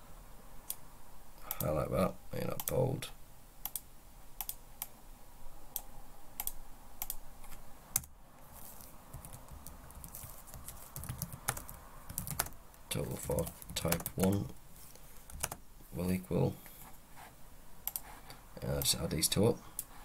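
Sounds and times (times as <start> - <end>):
computer keyboard typing: 9.1 - 14.5, 15.3 - 15.6.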